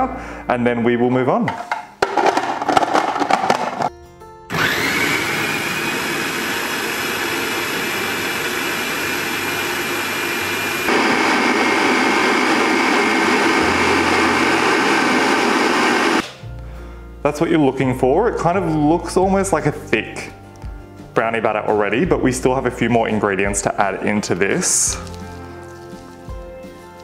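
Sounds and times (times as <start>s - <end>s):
food processor grinding: 4.5s - 16.2s.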